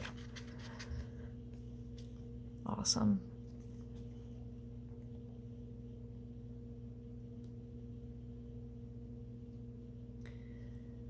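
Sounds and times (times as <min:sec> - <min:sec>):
low hum of held tones: 0:00.0 - 0:11.0.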